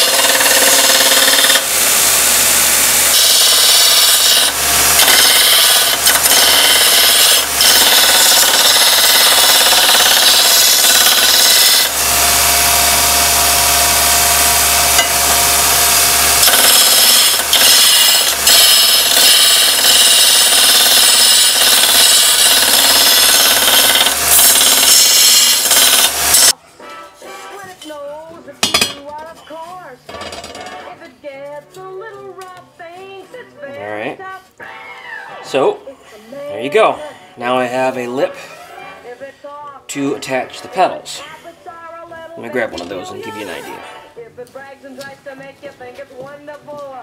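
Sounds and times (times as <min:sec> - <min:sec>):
belt grinder grinding steel: 0:00.0 - 0:26.6
grinder motor hum: 0:00.0 - 0:26.6.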